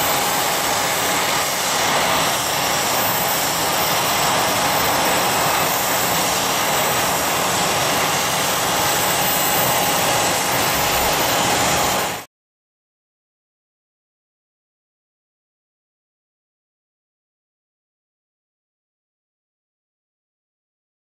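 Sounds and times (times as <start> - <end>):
jet turbine whine: 0.0 - 12.3.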